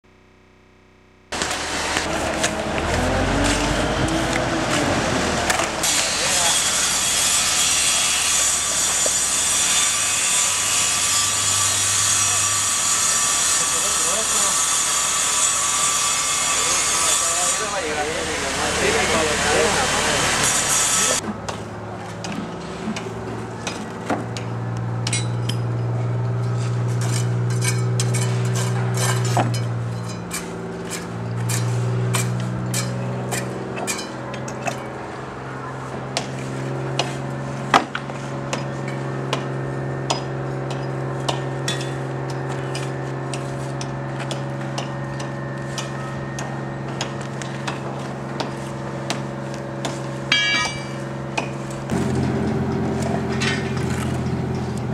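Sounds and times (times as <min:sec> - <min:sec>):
hand tools knocking on concrete: 0:50.3 - 0:52.0
machine engine running: 0:51.2 - 0:54.9.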